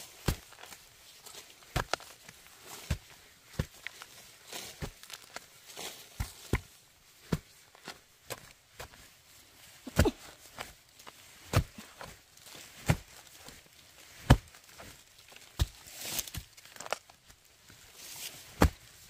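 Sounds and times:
rustling: 0.0s - 8.0s, 8.9s - 19.0s.

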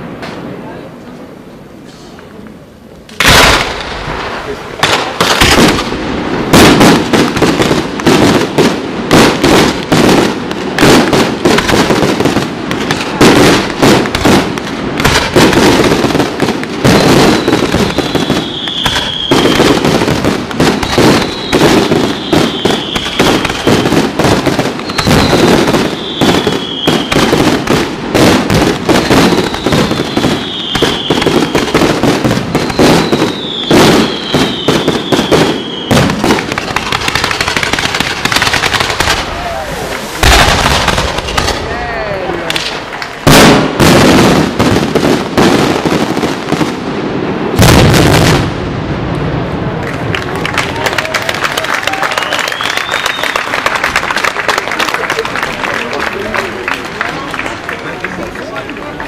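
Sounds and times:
fireworks bursting with crackle: 0.0s - 59.0s
falling firework whistle: 16.8s - 27.6s, 29.0s - 37.6s, 51.6s - 53.9s.

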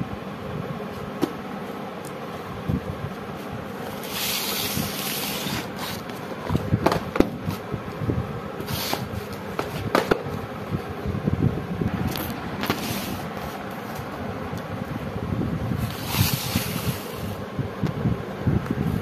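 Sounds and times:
cardboard box scraping on floor: 3.9s - 6.2s, 8.6s - 9.9s, 12.6s - 14.1s, 15.8s - 17.4s.

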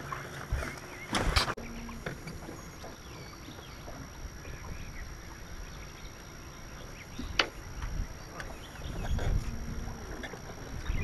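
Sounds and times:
low wind: 0.0s - 11.0s
water noise: 0.0s - 11.0s.

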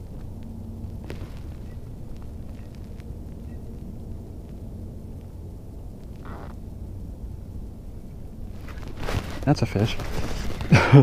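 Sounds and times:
low rumble: 0.0s - 11.0s.

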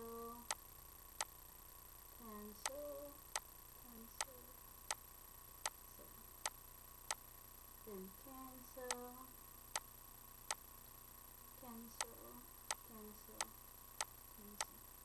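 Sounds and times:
woman humming faintly: 0.0s - 0.5s, 2.2s - 3.2s, 3.9s - 4.6s, 7.9s - 9.4s, 11.6s - 13.5s, 14.4s - 14.8s
steady ticking: 0.0s - 0.6s, 2.2s - 5.0s, 8.8s - 9.1s, 11.6s - 14.8s.

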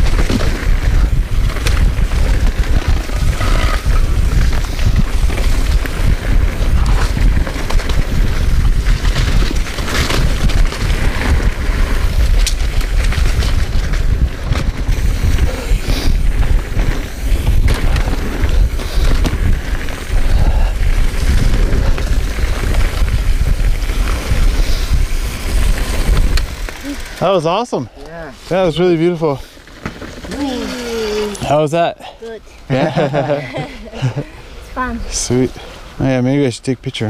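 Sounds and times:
wind buffeting camera: 0.0s - 27.8s
bike clicks and rattles: 0.0s - 31.7s
bike tyres rolling on dirt trail: 0.0s - 37.0s.

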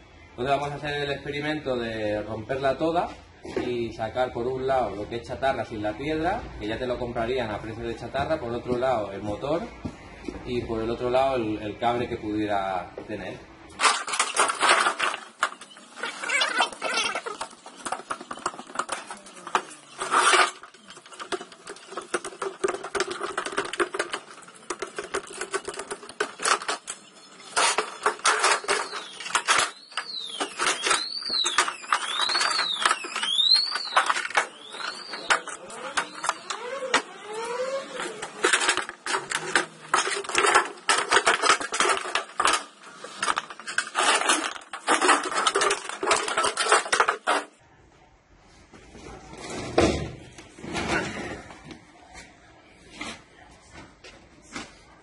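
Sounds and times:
metal clanking and scraping: 13.8s - 47.5s, 49.2s - 51.6s
high squeaks: 13.9s - 40.7s.

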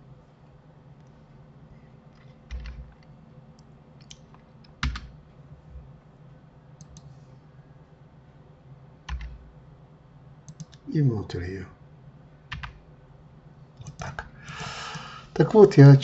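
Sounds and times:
faint low hum: 0.0s - 16.0s
keyboard keystrokes and clicks: 2.2s - 3.1s, 4.0s - 5.1s, 9.1s - 9.4s, 10.5s - 10.8s, 12.5s - 12.8s.

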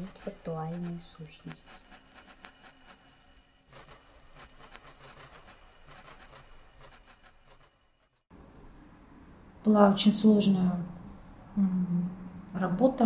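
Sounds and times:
mouse claws scratching: 0.0s - 8.2s.

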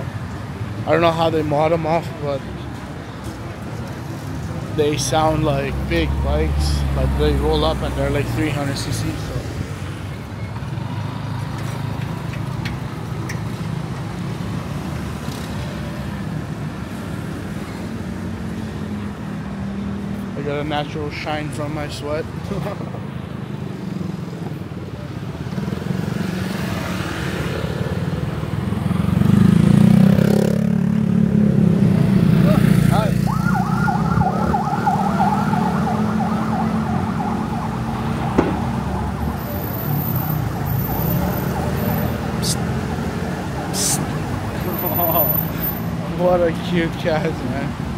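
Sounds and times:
street traffic: 0.0s - 47.9s
siren yelping: 33.2s - 42.0s.

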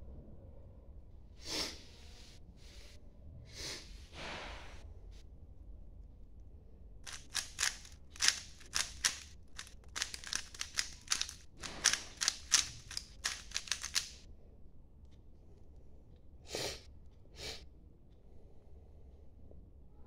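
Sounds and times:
puzzle cube clicking: 7.1s - 14.2s.

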